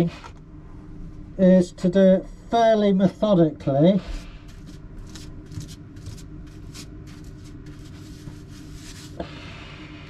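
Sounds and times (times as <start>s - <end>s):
steady low hum: 0.0s - 10.0s
paintbrush scratchy swishes: 4.5s - 9.2s.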